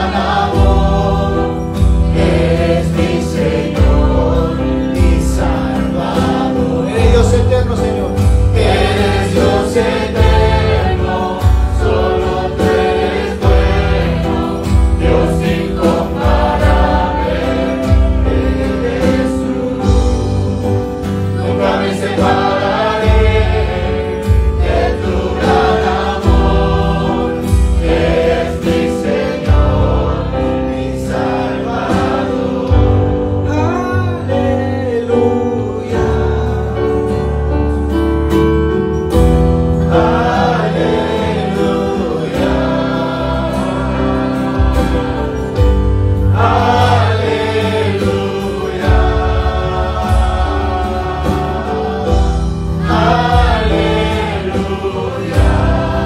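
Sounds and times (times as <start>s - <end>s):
worship band playing: 0.0s - 56.0s
man and woman singing: 21.2s - 37.0s, 46.4s - 56.0s.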